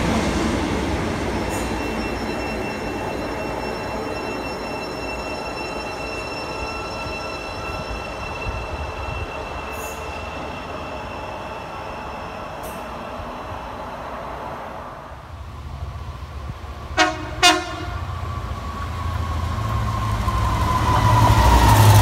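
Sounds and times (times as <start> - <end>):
train rumbling: 0.0 - 22.0
high-pitched whining tones: 1.5 - 13.6.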